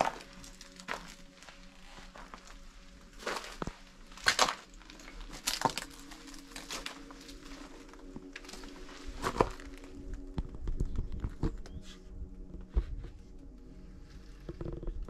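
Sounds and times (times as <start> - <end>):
sharp cracks and scrapes: 0.0 - 12.0
footsteps crunching over debris: 0.0 - 13.6.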